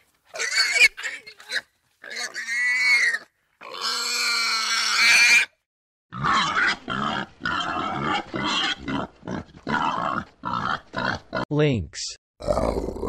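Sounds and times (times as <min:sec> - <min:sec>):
wild boar squealing: 0:00.3 - 0:11.4
wild boar grunting: 0:06.1 - 0:11.4.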